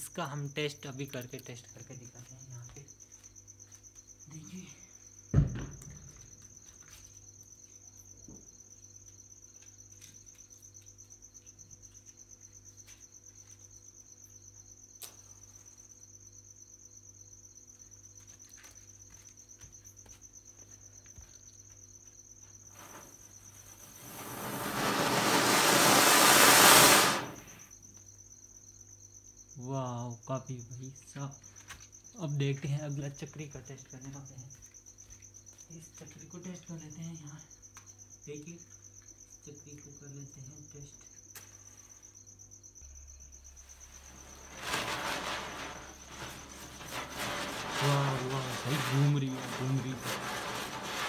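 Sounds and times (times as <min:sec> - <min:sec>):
crickets chirping: 0:00.0 - 0:51.0
firecracker spraying sparks hiss: 0:22.7 - 0:27.6, 0:44.0 - 0:51.0.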